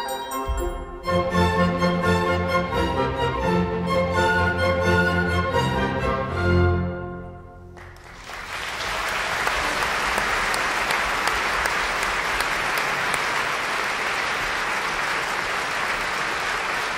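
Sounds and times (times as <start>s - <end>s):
orchestra chord: 0.0s - 7.7s
audience applauding: 7.8s - 16.9s.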